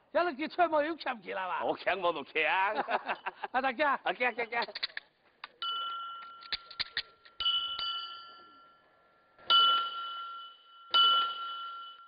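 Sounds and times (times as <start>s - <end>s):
small metal bell ringing: 5.6s - 12.0s.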